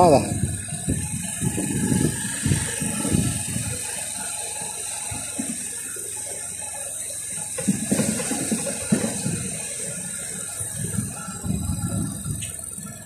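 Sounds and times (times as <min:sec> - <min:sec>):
low rumbling: 0:00.0 - 0:03.9, 0:10.5 - 0:13.0
constant hiss: 0:00.0 - 0:13.0
motorcycle mechanical rattle: 0:00.0 - 0:13.0.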